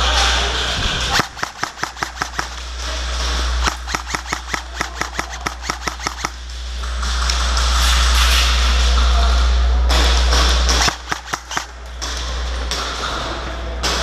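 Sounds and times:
airsoft gun rapid shots: 1.0 - 6.4, 10.7 - 11.8.

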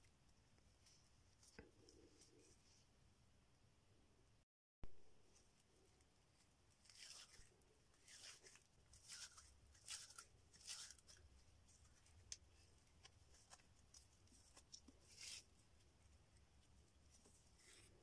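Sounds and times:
rustling of plant fibre twisted by hand: 5.2 - 18.0.

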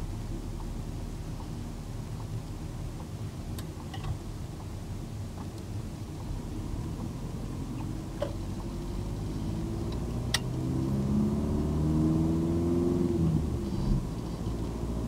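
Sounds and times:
road rumble: 0.0 - 15.0
car engine accelerating: 5.8 - 15.0.

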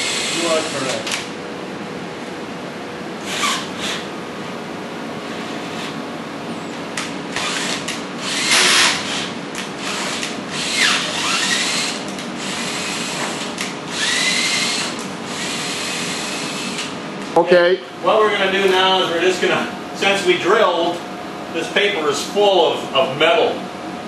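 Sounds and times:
cordless drill whining: 0.0 - 1.2, 3.2 - 4.1, 7.3 - 16.9.

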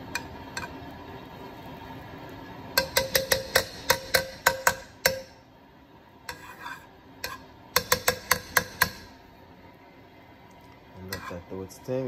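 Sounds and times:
spatula tapping frying pan: 0.0 - 0.8, 2.7 - 5.4, 6.3 - 6.6, 7.2 - 9.2.

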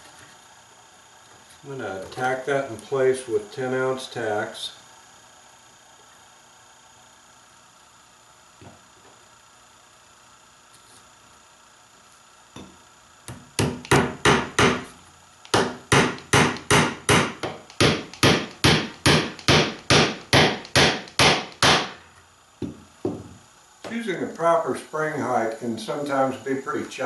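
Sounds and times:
hammer striking tacks into wood: 13.3 - 14.9, 15.5 - 22.0.

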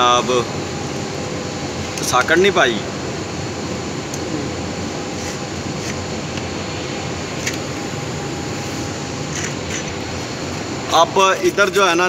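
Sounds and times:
machinery hum and hiss: 0.0 - 12.0.

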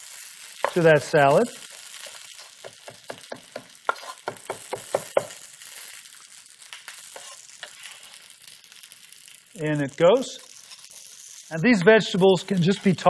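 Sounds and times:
frying sizzle in a pan: 0.0 - 13.0
knife chopping on wooden board: 2.6 - 5.4.

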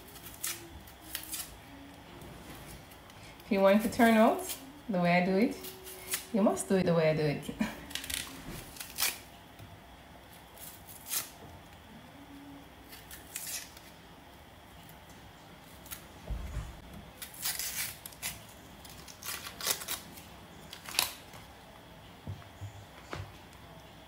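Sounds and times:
knife slicing crisp vegetables: 17.2 - 20.0.

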